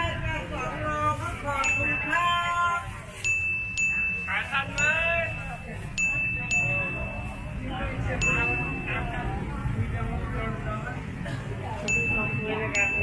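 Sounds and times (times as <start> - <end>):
high bell-like chime: 1.6 - 9.4, 11.9 - 13.0.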